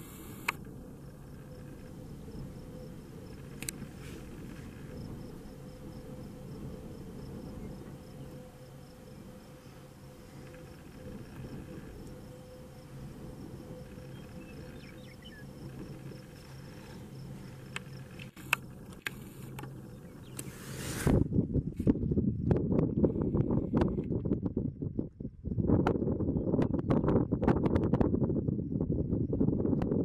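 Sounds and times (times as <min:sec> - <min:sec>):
sharp clicks: 0:00.4 - 0:00.7
high pulsing chirp: 0:04.8 - 0:20.6.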